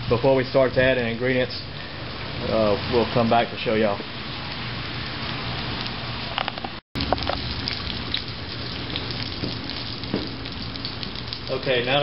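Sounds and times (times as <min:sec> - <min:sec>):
meat sizzling in hot oil: 0:07.0 - 0:11.9.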